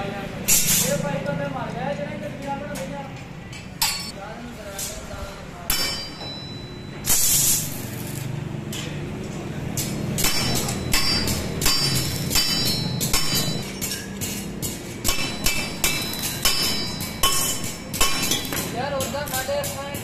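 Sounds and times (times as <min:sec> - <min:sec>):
arc welder crackling: 0:07.1 - 0:08.6, 0:09.7 - 0:20.0.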